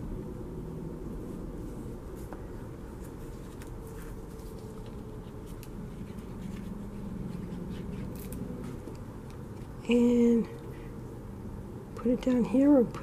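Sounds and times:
low background hum: 0.0 - 13.0
paper rustles: 2.2 - 6.7.

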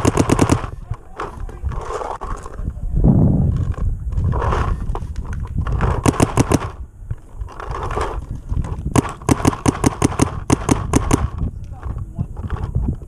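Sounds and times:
paintball guns firing: 0.0 - 1.7, 5.7 - 6.8, 8.9 - 11.5
low rumble: 1.5 - 7.2.

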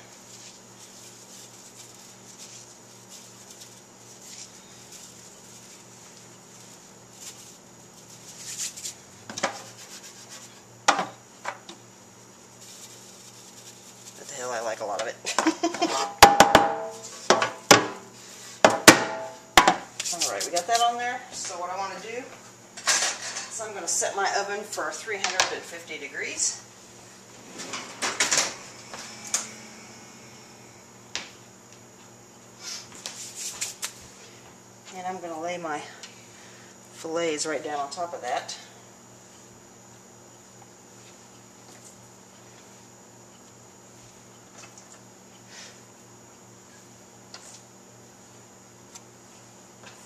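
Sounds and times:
hands rubbing metal sheet pan: 6.6 - 10.6
sheet pan knocking on countertop: 18.6 - 19.8.

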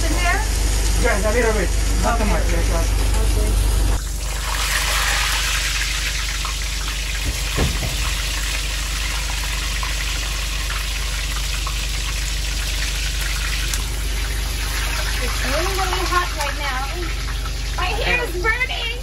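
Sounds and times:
oil sizzling in a pan: 0.0 - 19.0
brief knock: 7.2 - 8.2.

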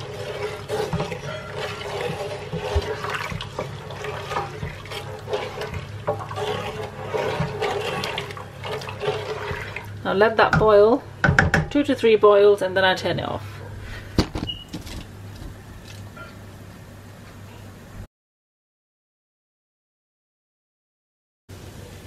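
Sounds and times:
syrup boiling and popping: 0.0 - 10.1
wooden spoon stirring: 0.0 - 10.8.

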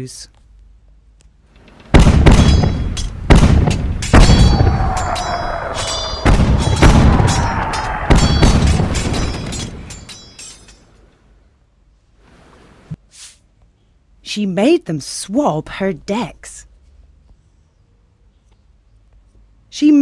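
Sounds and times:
cannon booms: 1.9 - 9.9
falling whistle: 4.3 - 8.6.

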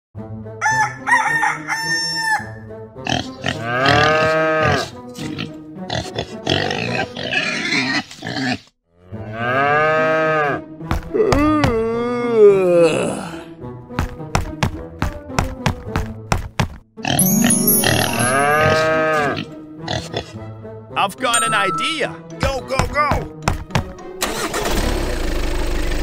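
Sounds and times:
background music: 0.2 - 7.8, 9.0 - 24.6
farm animal calls: 17.0 - 20.3.

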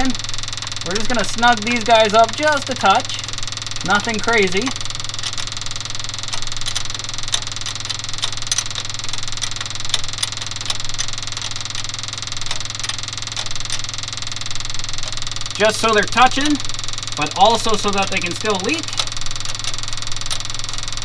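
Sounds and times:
diesel engine idling with clatter: 0.0 - 21.0.

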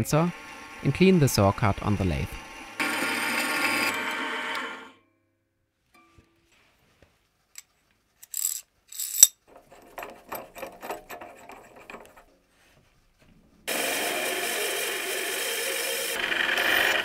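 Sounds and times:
bandsaw running: 0.0 - 4.9, 13.7 - 17.0
metallic clicks and rattling: 7.6 - 12.2.

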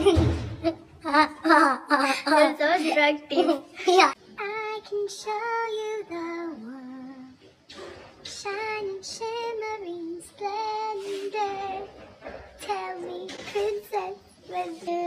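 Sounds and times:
woman singing unaccompanied: 4.2 - 7.4, 8.2 - 15.0.

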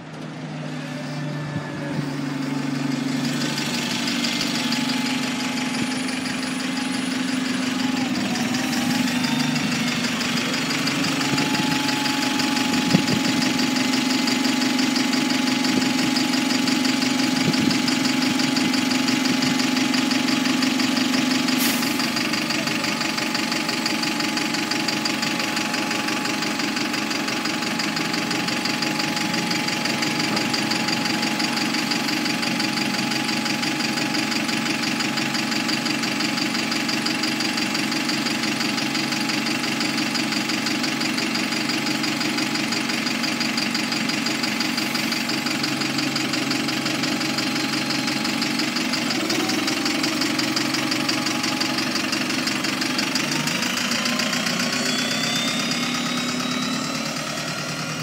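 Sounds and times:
bus engine idling: 0.0 - 58.0.

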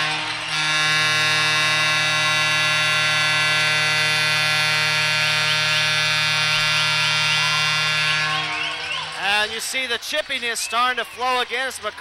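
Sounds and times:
goal horn blast: 0.0 - 8.7.

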